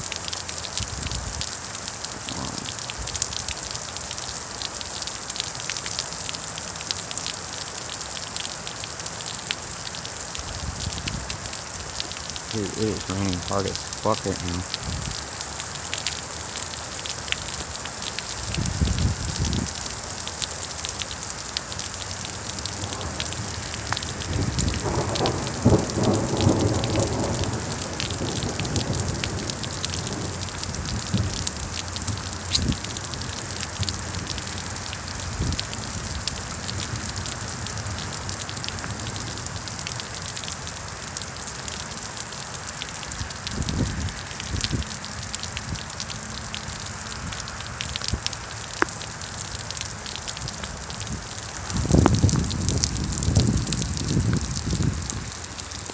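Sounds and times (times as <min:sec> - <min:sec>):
heavy rain falling: 0:00.0 - 0:55.9
thunder rumbling: 0:02.2 - 0:03.2, 0:22.7 - 0:33.2.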